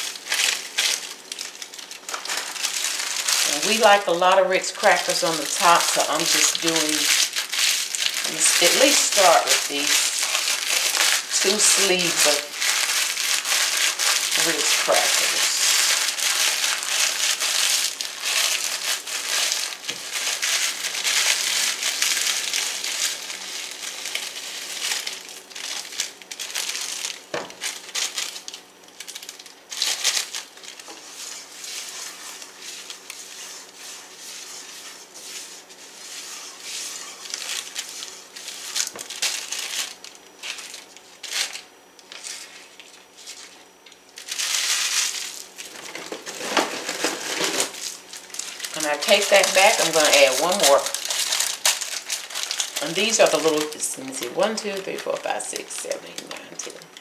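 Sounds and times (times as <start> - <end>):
crackers crunching: 0.0 - 57.0
plastic wrapper crinkling: 0.0 - 57.0.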